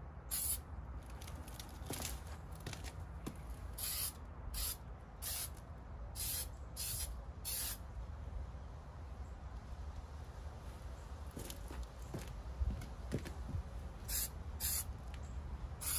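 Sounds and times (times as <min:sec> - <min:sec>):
aerosol can spraying: 0:03.8 - 0:05.5, 0:06.2 - 0:07.8, 0:14.1 - 0:14.9.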